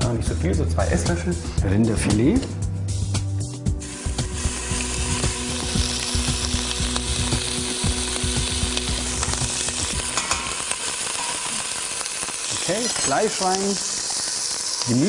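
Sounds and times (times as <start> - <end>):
meat sizzling in a pot: 3.7 - 15.0.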